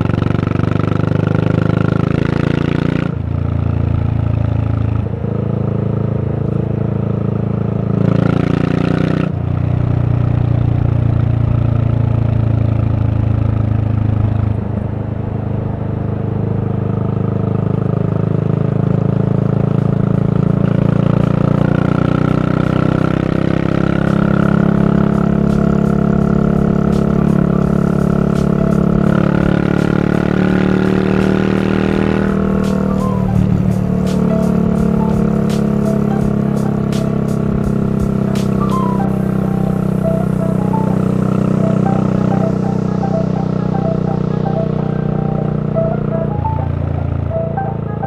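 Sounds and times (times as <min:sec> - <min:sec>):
motorcycle engine running: 0:00.0 - 0:48.0.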